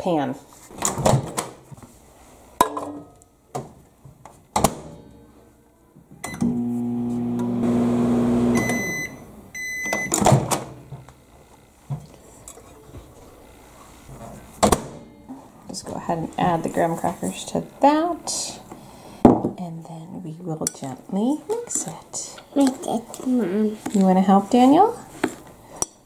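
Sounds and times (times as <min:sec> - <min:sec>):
microwave oven humming: 0:06.2 - 0:10.2
high beeps: 0:08.6 - 0:10.1.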